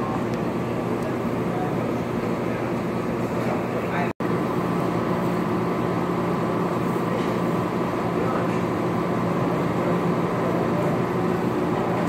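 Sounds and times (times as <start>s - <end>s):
continuous hum: 0.0s - 12.0s
voices chattering: 7.0s - 12.0s.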